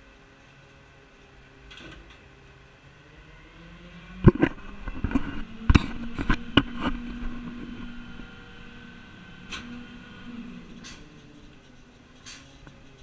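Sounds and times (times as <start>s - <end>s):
garbage truck engine humming: 4.3s - 13.0s.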